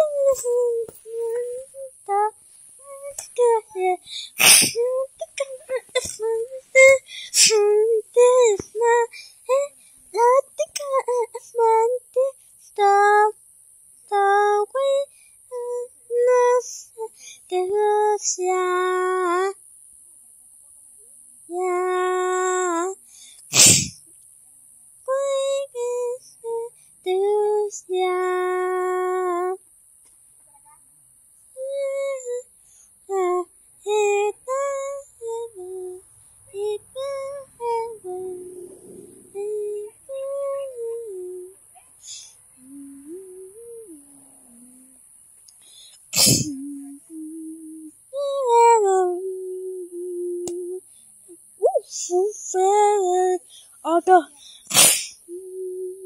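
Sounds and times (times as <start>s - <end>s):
high voice singing wordless tune: 0.0s - 13.4s, 14.1s - 19.6s, 21.5s - 23.9s, 25.1s - 29.6s, 33.1s - 36.0s, 36.6s - 45.0s, 45.9s - 50.8s, 51.6s - 56.0s
brief hiss: 45.5s - 46.6s, 54.7s - 55.2s.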